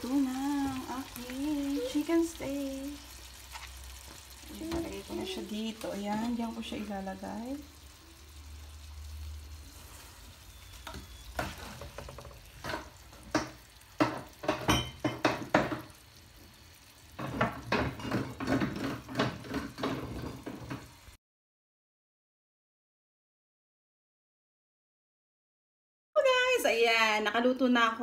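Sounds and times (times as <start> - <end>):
utensil knocking on frying pan: 10.9 - 16.0, 17.1 - 20.9.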